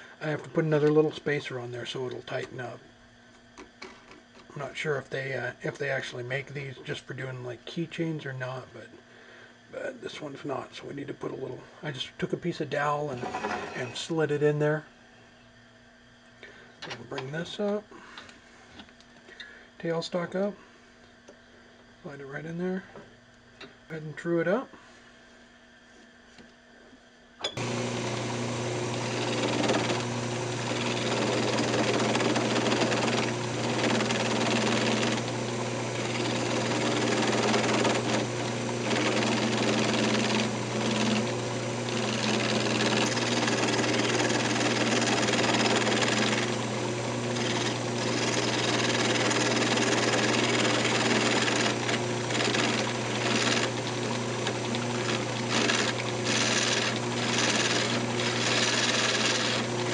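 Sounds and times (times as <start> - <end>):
turning tool cutting wood: 13.1 - 14.0, 27.6 - 59.9
wood lathe humming: 27.6 - 59.9.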